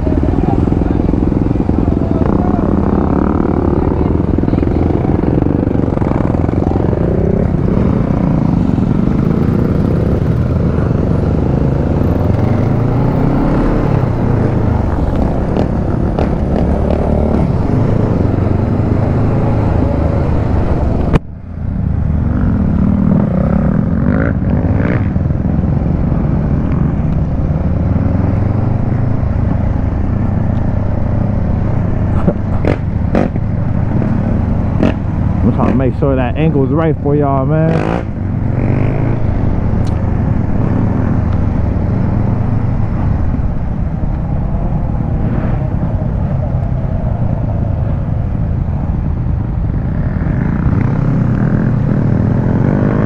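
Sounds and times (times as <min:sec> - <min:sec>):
riding noise rush: 0:00.0 - 0:53.0.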